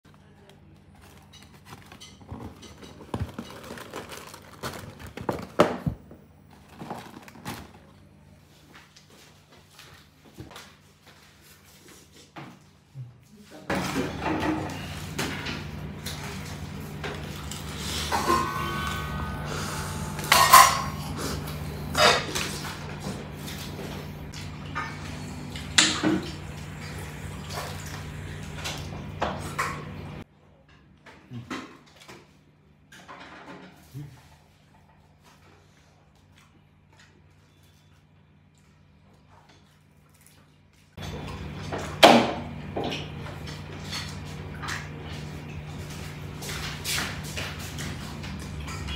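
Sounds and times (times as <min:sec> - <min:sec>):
paperboard box crinkling and rustling: 0:01.0 - 0:06.0, 0:06.6 - 0:08.0.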